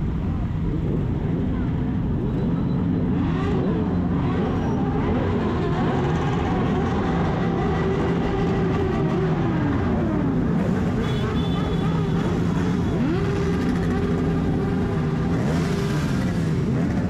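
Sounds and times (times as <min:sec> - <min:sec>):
motorcycle engines running: 0:00.0 - 0:17.0.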